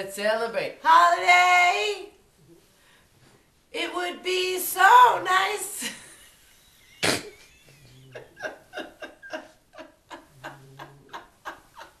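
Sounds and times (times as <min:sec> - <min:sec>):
woman laughing hard: 0:07.0 - 0:12.0.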